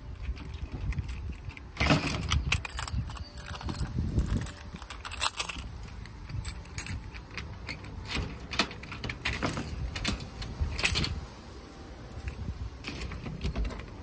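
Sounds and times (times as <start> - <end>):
keys jangling: 0.1 - 11.1
metal door lock clicks and knocks: 0.2 - 11.2, 12.8 - 14.0.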